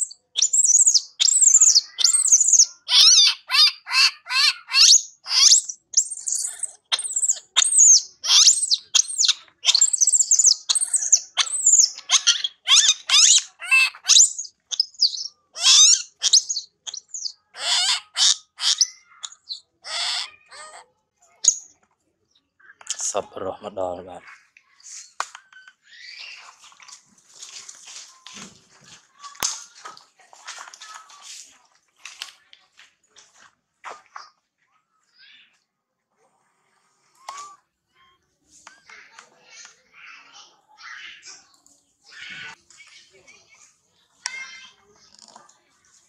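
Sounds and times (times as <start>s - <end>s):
baby monkey screaming and crying: 0.0s - 21.6s.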